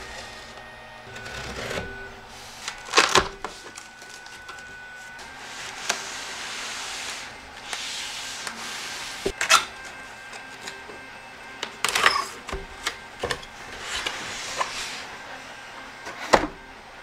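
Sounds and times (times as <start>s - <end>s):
cardboard boxes scraping: 0.0s - 9.4s.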